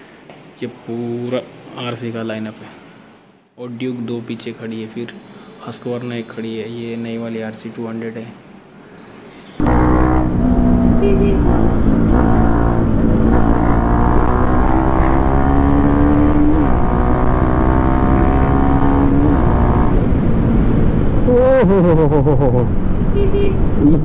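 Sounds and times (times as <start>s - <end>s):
motorcycle engine accelerating: 9.6s - 24.0s.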